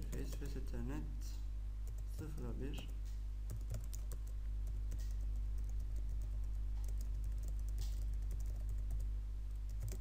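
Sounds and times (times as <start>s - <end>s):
steady low hum: 0.0s - 10.0s
typing on keyboard: 3.5s - 10.0s.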